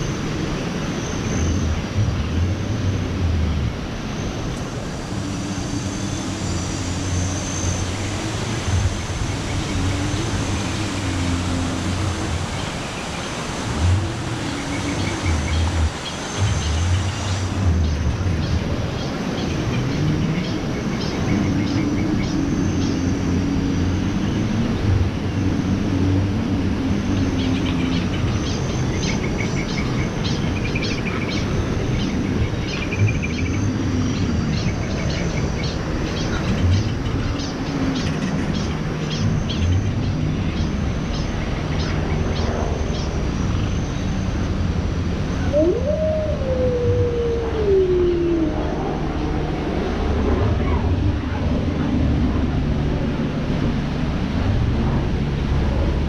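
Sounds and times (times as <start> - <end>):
low outdoor background noise: 0.0 - 56.0
rising and falling tone: 45.4 - 51.7.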